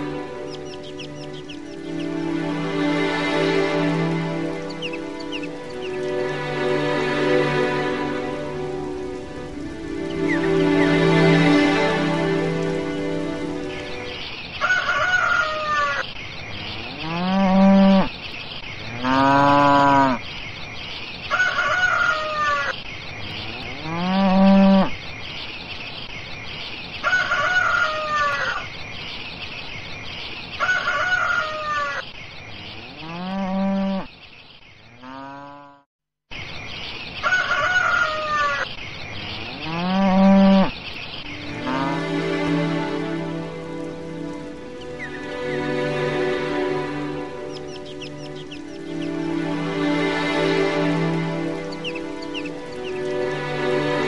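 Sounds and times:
high chirping background: 0.0s - 54.0s
animal calls: 16.8s - 18.1s, 39.4s - 40.8s.

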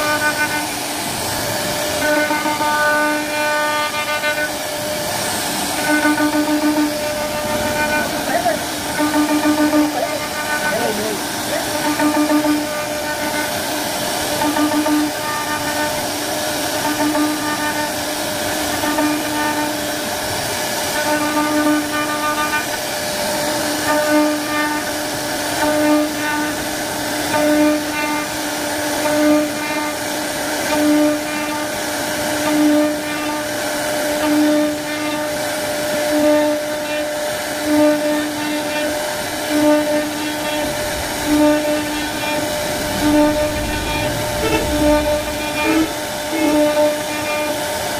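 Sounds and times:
bit cutting wood hiss: 0.0s - 20.1s, 36.1s - 47.9s
router spindle whining: 0.0s - 27.2s, 34.7s - 47.9s
steady hum: 0.0s - 47.9s.

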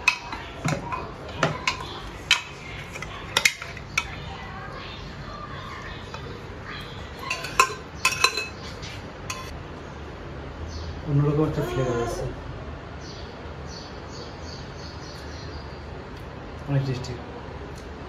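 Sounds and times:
spoon clinking on metal pot: 7.2s - 8.6s, 9.3s - 9.5s.

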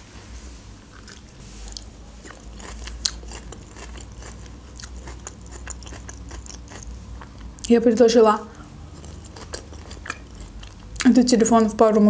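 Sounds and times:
person chewing crunchy food: 0.9s - 7.7s, 8.5s - 11.1s.

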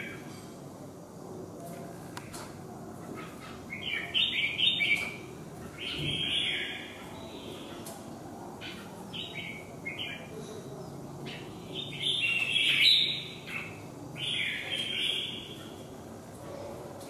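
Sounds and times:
bird chirping and singing: 3.0s - 8.0s, 8.6s - 10.4s, 11.2s - 15.9s.

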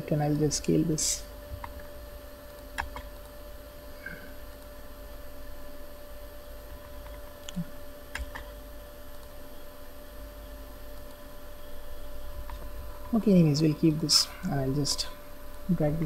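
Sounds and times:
low electrical hum: 0.0s - 16.0s
computer mouse clicks: 2.8s - 3.4s, 6.8s - 8.6s.

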